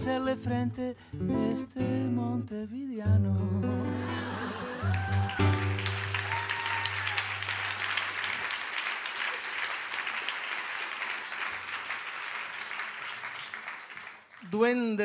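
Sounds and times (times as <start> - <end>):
audience applauding: 4.2 - 14.6.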